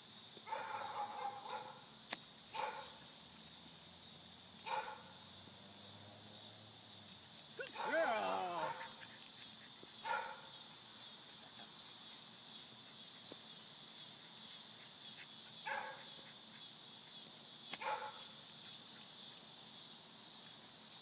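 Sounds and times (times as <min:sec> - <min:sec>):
crickets chirring: 0:00.0 - 0:21.0
dog barking: 0:00.5 - 0:01.8, 0:02.5 - 0:03.0, 0:04.6 - 0:05.1, 0:07.6 - 0:09.0, 0:10.0 - 0:10.5, 0:15.6 - 0:16.2, 0:17.8 - 0:18.3.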